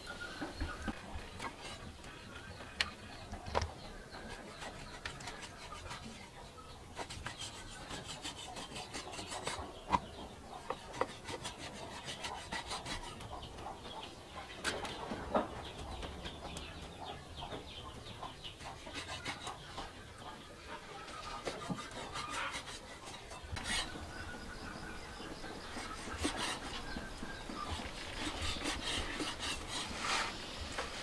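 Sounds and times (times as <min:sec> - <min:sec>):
cleaver rasping through meat: 0:04.3 - 0:06.2, 0:07.0 - 0:09.7, 0:10.7 - 0:13.3, 0:21.4 - 0:23.9, 0:25.7 - 0:26.9, 0:27.7 - 0:30.4.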